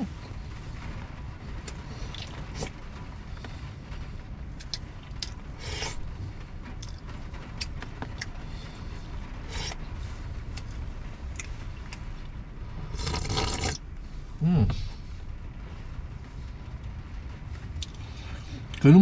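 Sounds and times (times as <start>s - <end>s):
low rumble: 0.0s - 19.0s
eating: 9.5s - 9.8s, 13.0s - 13.8s.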